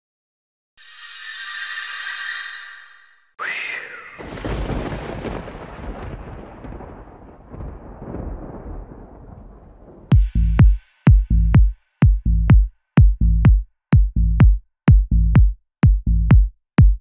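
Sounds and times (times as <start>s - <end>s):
deep boom: 4.2s - 13.6s
electronic dance music: 10.1s - 15.5s.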